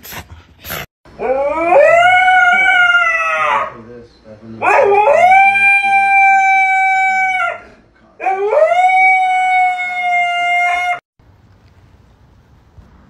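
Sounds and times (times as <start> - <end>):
dog howling: 1.2 - 3.8, 4.6 - 11.0.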